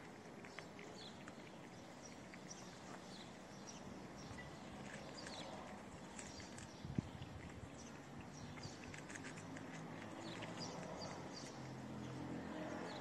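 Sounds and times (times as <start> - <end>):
cats chewing wet food: 0.0 - 13.0.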